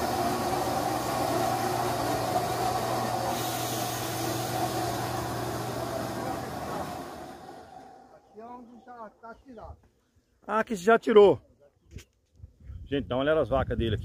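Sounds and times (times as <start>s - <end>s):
vacuum pump humming: 0.0s - 8.2s.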